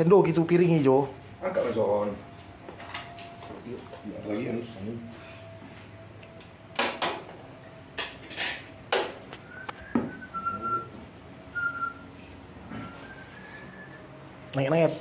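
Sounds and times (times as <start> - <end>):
thin high whistle: 9.4 - 12.1, 12.7 - 14.0.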